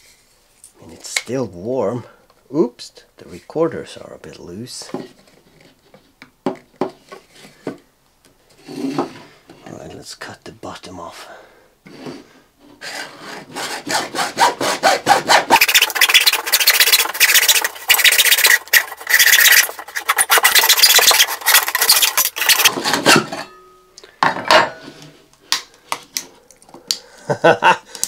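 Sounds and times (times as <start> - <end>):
hacksaw cutting plastic pipe: 12.8 - 23.3.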